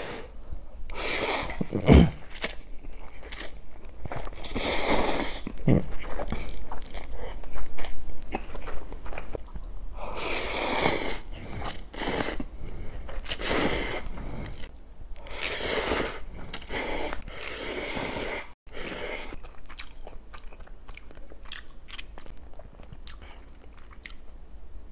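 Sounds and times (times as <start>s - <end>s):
person chewing: 0.9s - 24.3s
person slurping noodles: 1.0s - 2.4s, 4.4s - 6.6s, 10.1s - 19.4s.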